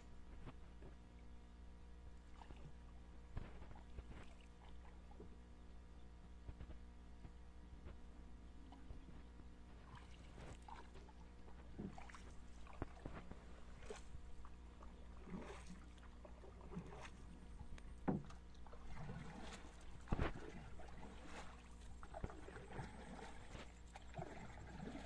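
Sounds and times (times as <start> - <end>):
water splashing and sloshing: 2.2 - 5.4, 8.6 - 25.0.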